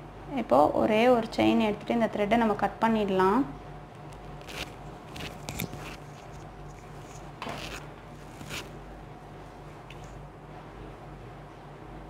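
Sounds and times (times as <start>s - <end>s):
yarn rustling: 4.4s - 8.8s.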